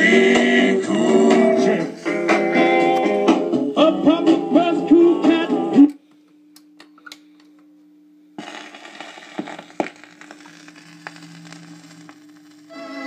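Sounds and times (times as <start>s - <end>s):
record player music: 0.0s - 6.0s, 8.4s - 13.0s
record surface hiss and crackle: 5.7s - 13.0s
record pops: 8.4s - 12.7s.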